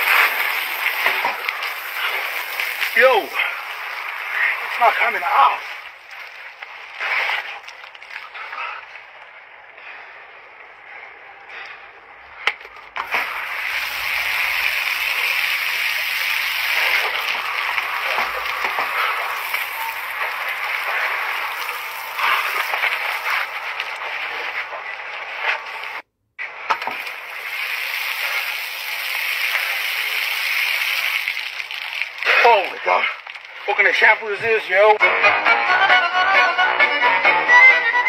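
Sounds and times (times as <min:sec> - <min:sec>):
shower water spraying on concrete: 0:00.0 - 0:08.0, 0:13.0 - 0:24.5, 0:26.8 - 0:34.0.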